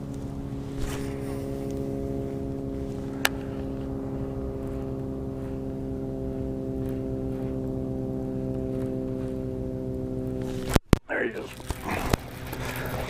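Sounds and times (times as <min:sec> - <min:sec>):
steady low hum with overtones: 0:00.0 - 0:13.0.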